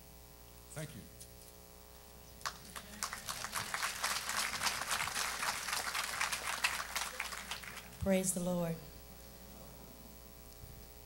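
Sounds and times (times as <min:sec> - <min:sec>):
congregation applauding: 0:02.4 - 0:08.0.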